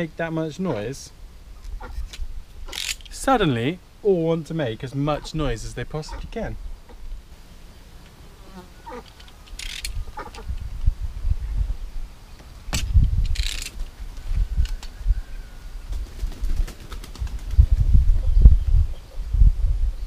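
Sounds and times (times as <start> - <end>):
rustles: 0.0 - 19.8
bird calls: 6.0 - 10.5
low microphone rumble: 10.0 - 15.6, 17.3 - 20.0.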